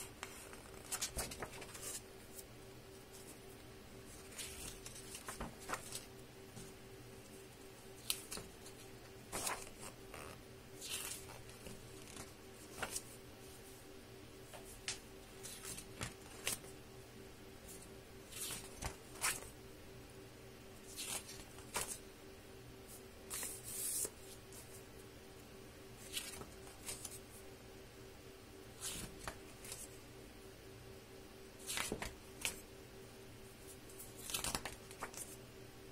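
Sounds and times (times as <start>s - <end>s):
book pages turning: 0.0s - 2.4s, 3.1s - 7.4s, 8.0s - 13.2s, 14.5s - 16.7s, 17.7s - 19.5s, 20.8s - 22.0s, 23.3s - 24.8s, 26.0s - 27.2s, 28.7s - 29.9s, 31.6s - 32.6s, 33.7s - 35.4s
faint steady hum: 0.0s - 35.9s.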